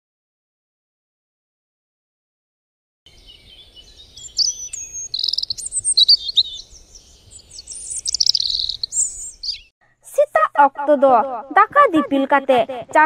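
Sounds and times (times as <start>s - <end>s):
songbirds chirping and whistling: 3.1s - 9.7s.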